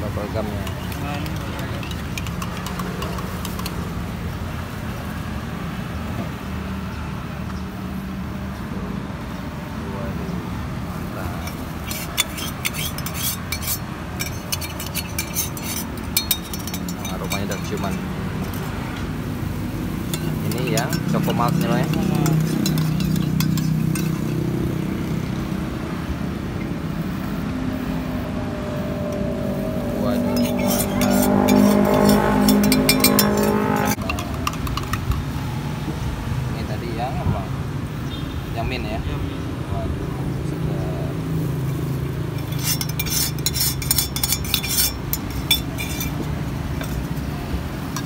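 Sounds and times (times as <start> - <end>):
passing vehicle engines rumbling: 0.0 - 48.0
metal pitcher clinking while pouring: 0.6 - 3.8, 11.4 - 18.8, 20.0 - 24.4, 30.3 - 35.3, 42.4 - 47.1.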